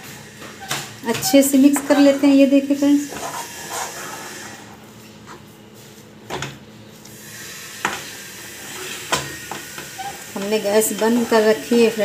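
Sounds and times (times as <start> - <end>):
spatula scraping dough in a pan: 0.6 - 6.0.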